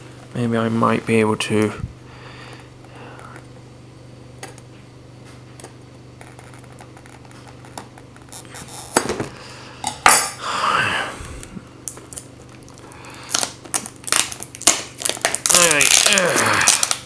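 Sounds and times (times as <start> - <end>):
plastic packaging rustling: 11.8 - 17.0.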